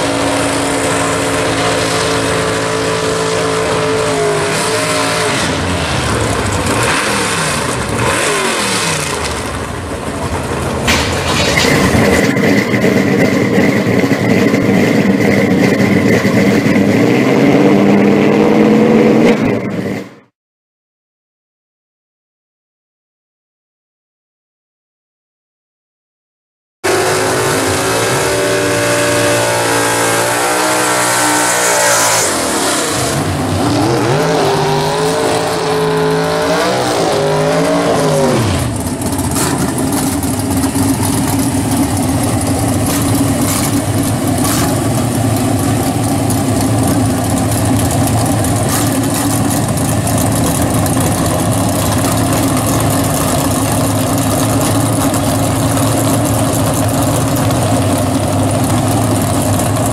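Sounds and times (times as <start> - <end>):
car engine revving: 0.0 - 20.1, 26.8 - 59.9
engine pops: 10.8 - 16.8.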